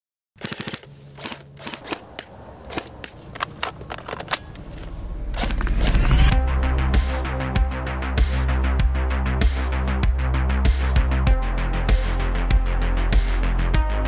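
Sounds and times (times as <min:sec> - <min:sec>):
airsoft rifle shots: 0:00.4 - 0:05.6
electronic music with synth drone: 0:05.0 - 0:14.0.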